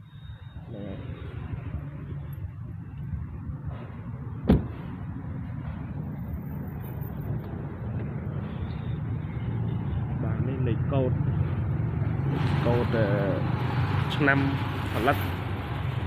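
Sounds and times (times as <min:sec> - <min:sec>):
car door shutting: 0:04.4 - 0:04.8.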